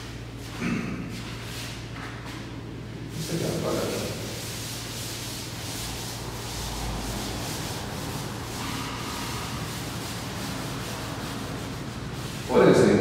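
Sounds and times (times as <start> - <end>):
eraser rubbing on chalkboard: 3.2 - 12.6.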